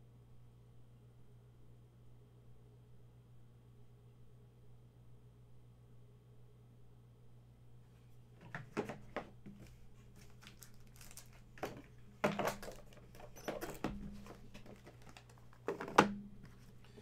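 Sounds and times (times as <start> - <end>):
low electrical hum: 0.0 - 17.0
packaging crinkling: 9.6 - 16.9.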